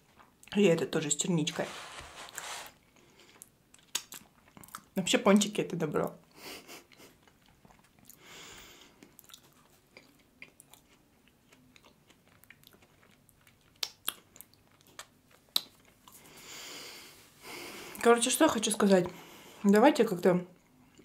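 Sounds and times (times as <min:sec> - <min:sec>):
quiet chewing: 0:03.0 - 0:05.0, 0:06.7 - 0:16.6
wet mouth clicks: 0:03.8 - 0:04.9, 0:14.9 - 0:15.8
soft breaths: 0:08.1 - 0:09.1, 0:16.1 - 0:18.1, 0:19.0 - 0:19.7.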